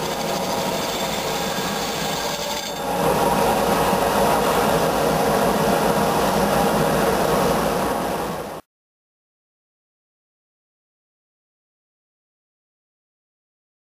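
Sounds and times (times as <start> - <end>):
belt grinder rasping metal pipe: 0.0 - 2.9.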